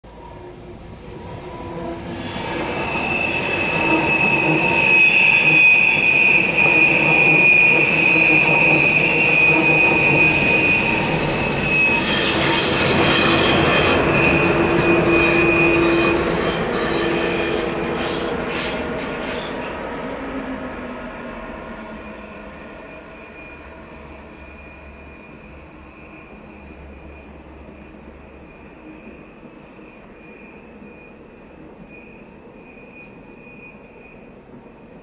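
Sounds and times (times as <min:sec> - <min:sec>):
train wheels squealing on rails: 0:00.1 - 0:35.0
train wheels rumbling: 0:00.5 - 0:22.9.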